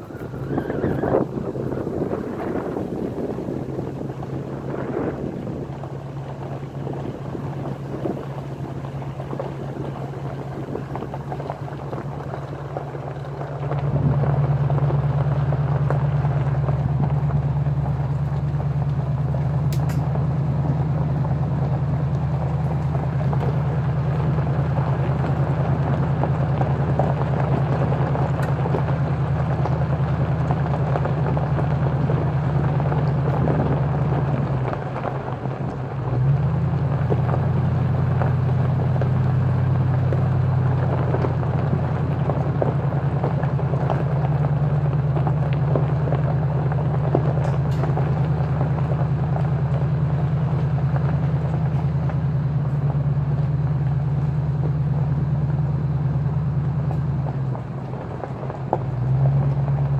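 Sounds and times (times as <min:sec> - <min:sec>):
engine and drivetrain hum: 0:00.0 - 0:59.9
tyres on gravel: 0:00.0 - 0:59.9.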